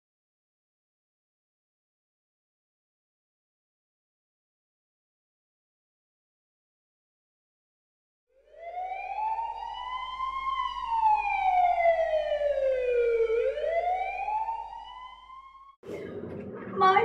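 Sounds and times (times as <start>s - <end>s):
emergency siren wailing: 8.3s - 15.8s.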